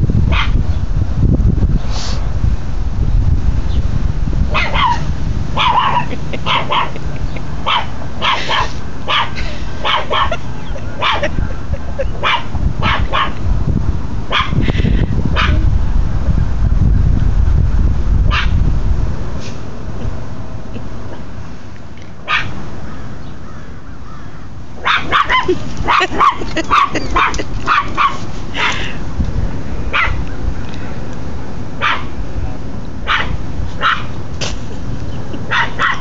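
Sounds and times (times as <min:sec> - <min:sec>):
steady low rumble: 0:00.0 - 0:22.8, 0:24.7 - 0:36.0
small dog barking: 0:00.3 - 0:00.6, 0:04.5 - 0:07.0, 0:07.6 - 0:10.4, 0:11.0 - 0:11.4, 0:12.2 - 0:13.4, 0:14.3 - 0:14.6, 0:15.3 - 0:15.6, 0:18.3 - 0:18.6, 0:22.2 - 0:22.6, 0:24.8 - 0:28.8, 0:29.9 - 0:30.2, 0:31.8 - 0:32.2, 0:33.0 - 0:34.2, 0:35.5 - 0:36.0.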